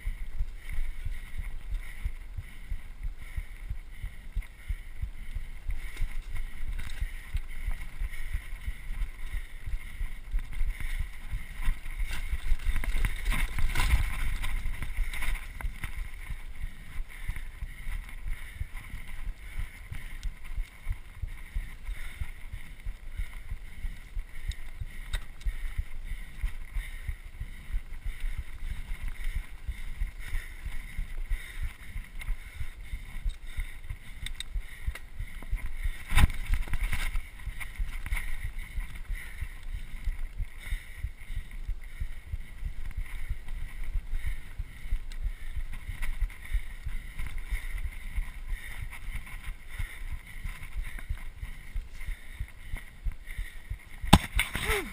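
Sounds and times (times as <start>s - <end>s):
bike tyres rumbling: 0.0s - 54.9s
bike knocking and rattling: 10.3s - 16.9s.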